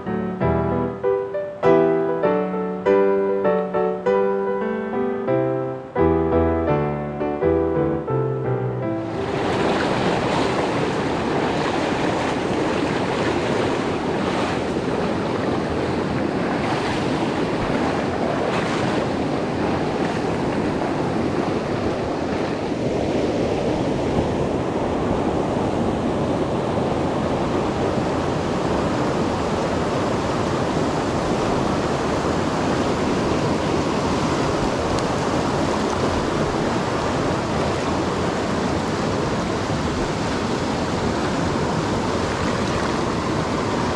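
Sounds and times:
stream rushing over stones: 0:09.1 - 0:26.0, 0:26.8 - 0:43.9.

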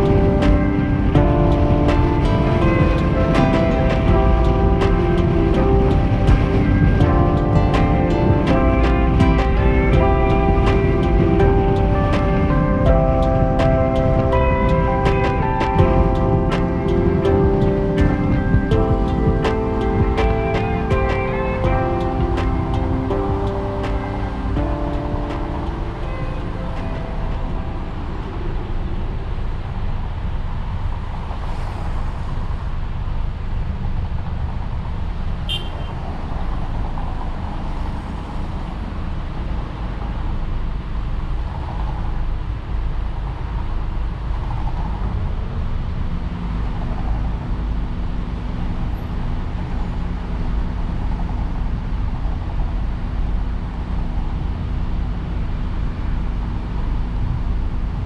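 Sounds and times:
car driving on highway: 0:00.0 - 0:58.0.

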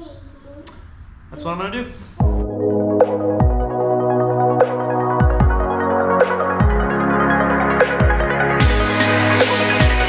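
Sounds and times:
deep kick drum beats: 0:02.2 - 0:04.0, 0:04.6 - 0:10.0
synth chords: 0:02.2 - 0:10.0.

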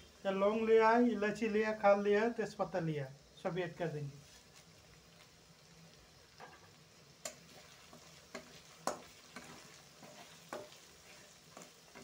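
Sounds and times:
onions sizzling in oil: 0:00.0 - 0:12.0
metal spatula scraping pan: 0:07.5 - 0:12.0.

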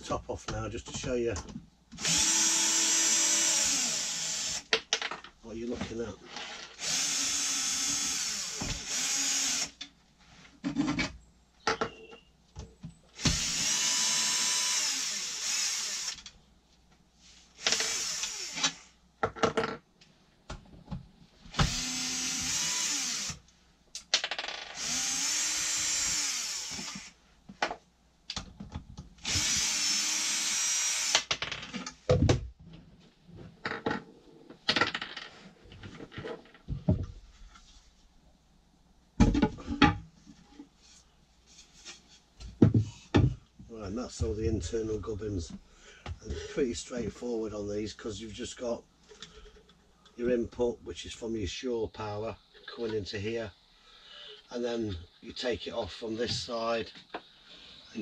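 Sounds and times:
electric drill-driver spinning: 0:02.0 - 0:04.7, 0:06.8 - 0:09.8, 0:13.2 - 0:16.3, 0:17.6 - 0:18.8, 0:21.5 - 0:23.4, 0:24.7 - 0:27.2, 0:29.2 - 0:31.3.

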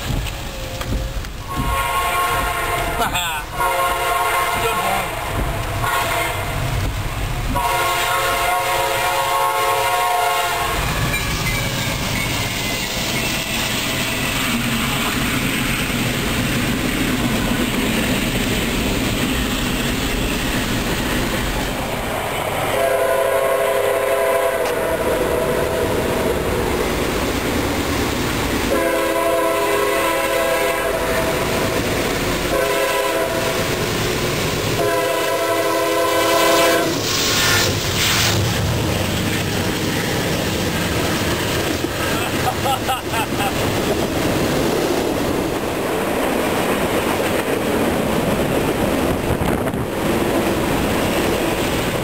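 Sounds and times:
freight train rumbling past: 0:00.0 - 0:52.0
train horn blasts: 0:00.5 - 0:06.6, 0:07.5 - 0:11.2, 0:22.7 - 0:26.0, 0:28.7 - 0:31.7, 0:32.5 - 0:33.7, 0:34.7 - 0:37.1
wheels clattering on rail joints: 0:10.8 - 0:22.0.

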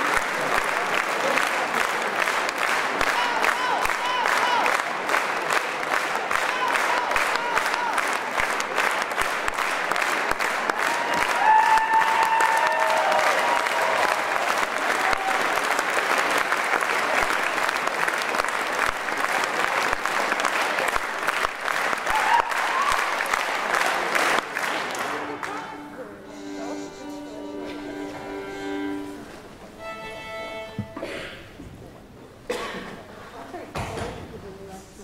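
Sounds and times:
audience applauding: 0:00.0 - 0:26.1.

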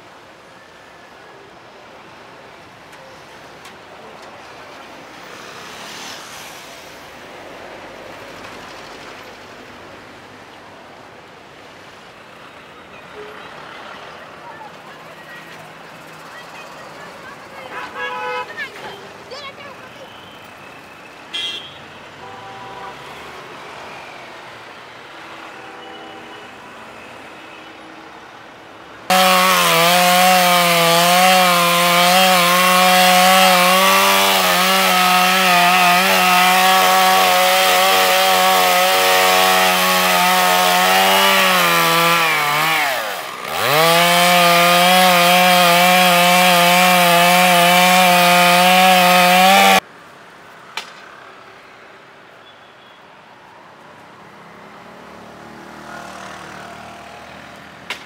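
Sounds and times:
outdoor background sound: 0:00.0 - 0:58.0
chainsaw cutting tree trunk: 0:29.1 - 0:49.8.

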